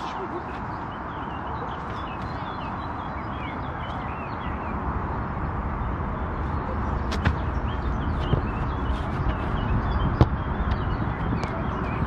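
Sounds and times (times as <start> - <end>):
small birds chirping: 0.0 - 12.0
wind on microphone: 5.9 - 12.0.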